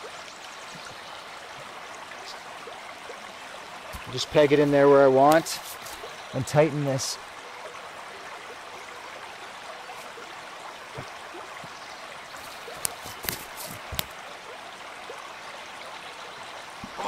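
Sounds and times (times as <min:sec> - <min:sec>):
stream water rushing: 0:00.0 - 0:17.0
footsteps snapping twigs: 0:12.5 - 0:14.1.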